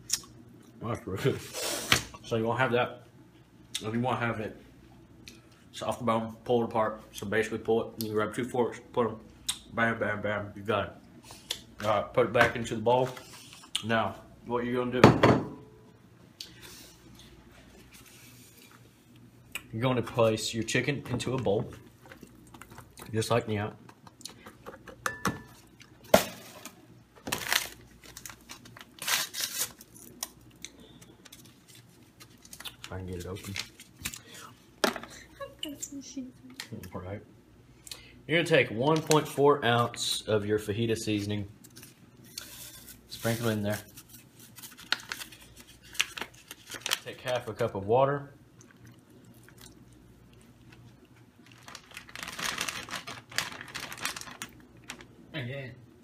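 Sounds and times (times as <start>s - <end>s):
paper packet crinkling: 26.4s - 34.2s, 41.2s - 47.6s, 51.4s - 55.2s.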